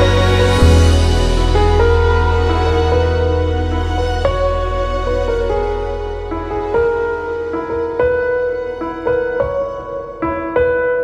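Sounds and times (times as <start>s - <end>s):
deep bass note: 0.0s - 7.2s
soft instrumental music: 0.0s - 11.0s.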